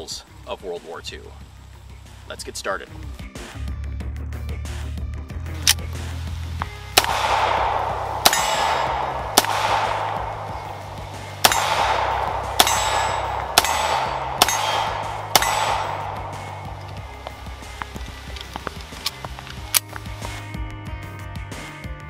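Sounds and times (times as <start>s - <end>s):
background music with bass line: 0.0s - 22.0s
pistol shots echoing: 6.9s - 19.9s.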